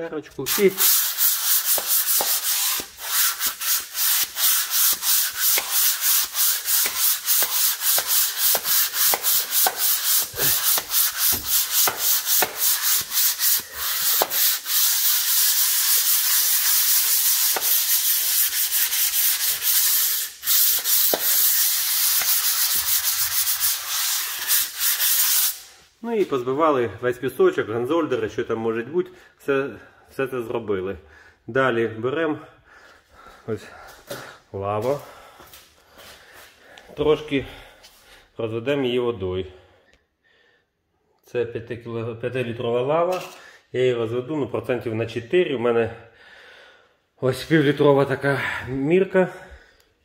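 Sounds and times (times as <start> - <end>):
sandpaper rubbing: 0.5 - 25.8.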